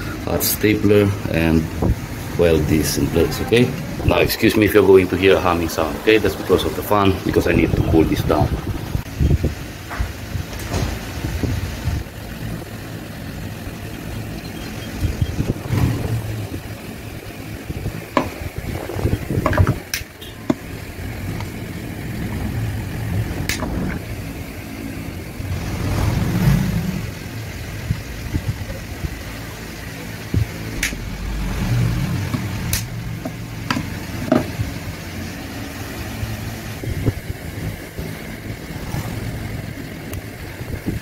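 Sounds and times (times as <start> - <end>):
sharp clicks: 30.8 - 31.0, 32.7 - 32.9.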